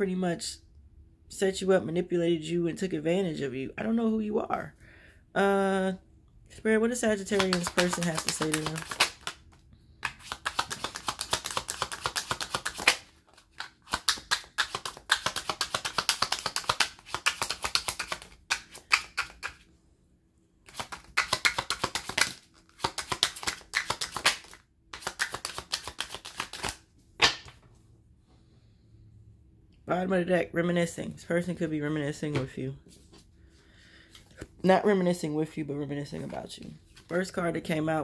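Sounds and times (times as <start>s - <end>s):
cards being shuffled: 7.2s - 19.7s, 20.7s - 27.7s.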